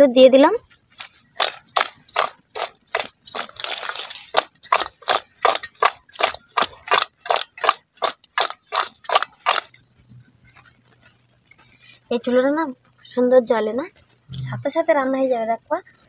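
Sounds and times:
fish tossed in metal bowl: 0.8s - 9.8s.

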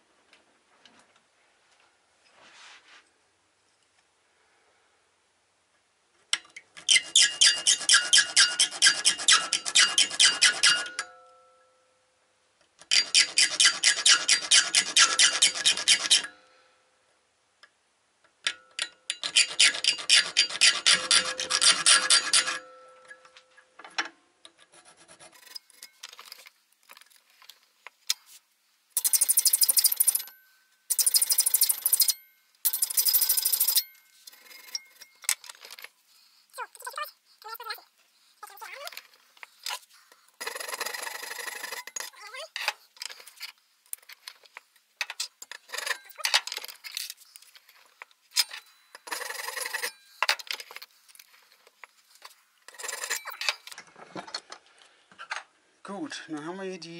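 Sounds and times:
hand file rasping metal: 6.9s - 10.8s, 12.9s - 16.2s, 19.2s - 22.6s, 48.5s - 50.1s.

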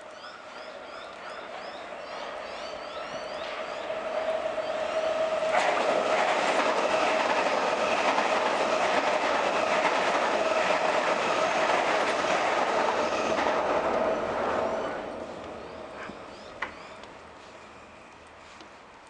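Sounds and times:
train wheels rumbling on track: 0.0s - 18.4s.

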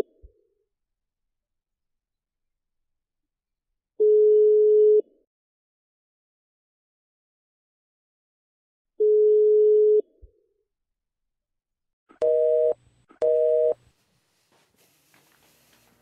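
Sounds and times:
steady telephone tone: 12.2s - 13.8s.

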